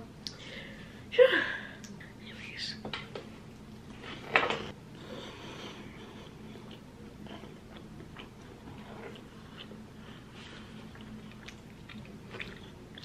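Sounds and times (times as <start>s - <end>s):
person chewing: 6.0s - 13.0s.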